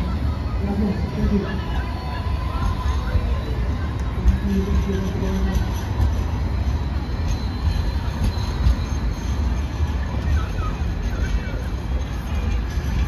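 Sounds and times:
trams running along street: 0:00.0 - 0:13.0.

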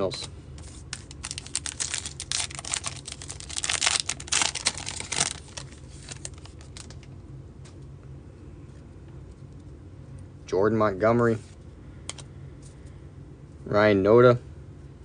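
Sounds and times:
plastic wrapper tearing and crinkling: 0:00.7 - 0:07.1.

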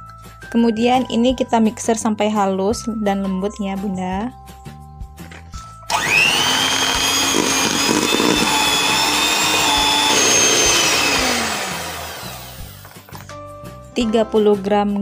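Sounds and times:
electric hand mixer running: 0:05.9 - 0:13.1.

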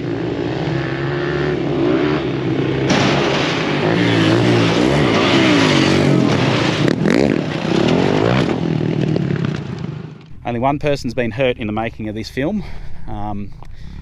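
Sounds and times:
dirt bike engines revving: 0:00.0 - 0:09.4.

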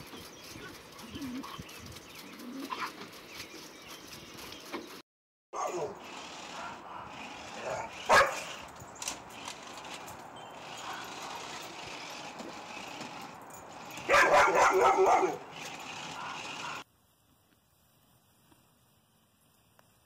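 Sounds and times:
dog barking: 0:05.6 - 0:08.6, 0:14.0 - 0:15.5, 0:16.1 - 0:16.8.

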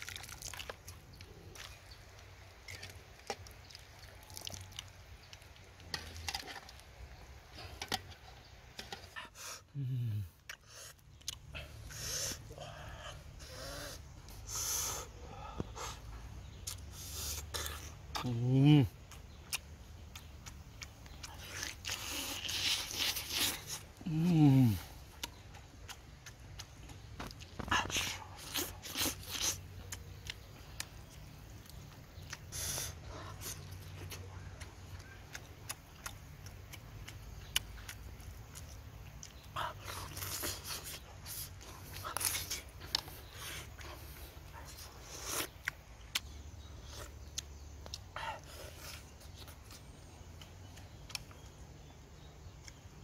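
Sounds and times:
man chewing: 0:00.0 - 0:53.0
man blowing breathy puffs: 0:11.8 - 0:12.6, 0:13.4 - 0:16.1, 0:32.5 - 0:33.5
lip smacks and clicks: 0:25.0 - 0:53.0.

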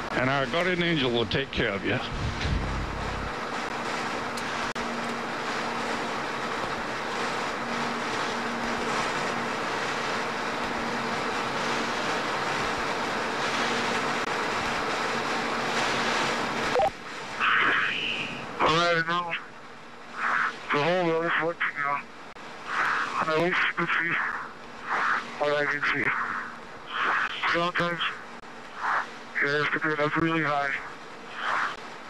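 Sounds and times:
steady hiss: 0:00.0 - 0:32.0
brief noise burst: 0:24.2 - 0:28.1, 0:30.8 - 0:31.8.

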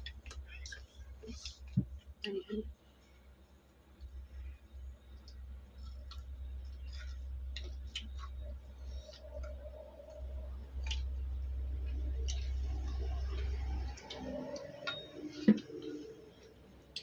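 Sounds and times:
mouth clicks and smacks chewing: 0:05.2 - 0:15.0.

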